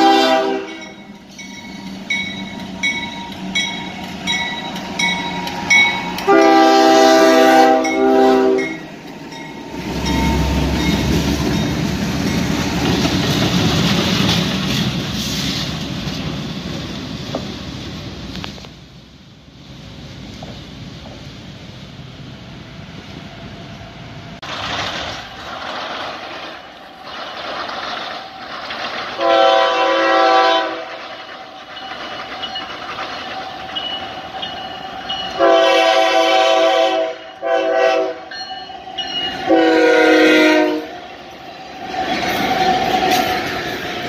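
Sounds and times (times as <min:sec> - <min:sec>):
locomotive air horn: 0:00.0 - 0:00.9, 0:06.2 - 0:08.8, 0:29.2 - 0:31.0, 0:35.4 - 0:38.3, 0:39.4 - 0:40.9
train rolling noise: 0:00.0 - 0:44.0.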